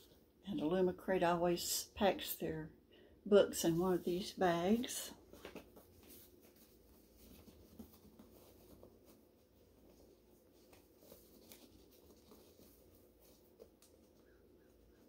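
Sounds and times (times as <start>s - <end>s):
packing bag rustling and clicking: 9.8s - 14.2s.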